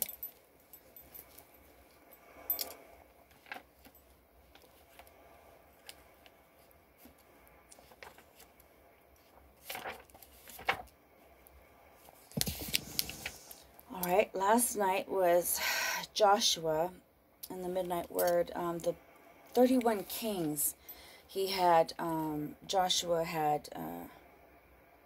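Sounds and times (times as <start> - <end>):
faint steady hum: 0.0 - 25.0
book pages rustling: 3.3 - 11.0, 12.0 - 13.7.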